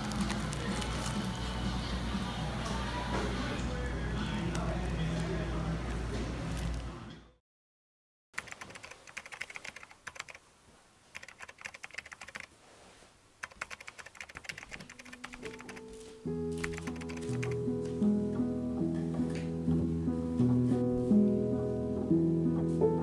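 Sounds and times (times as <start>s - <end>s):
keyboard typing clicks: 8.4s - 10.4s, 11.2s - 12.5s, 13.4s - 15.9s, 16.6s - 17.6s
soft guitar music: 15.6s - 23.0s.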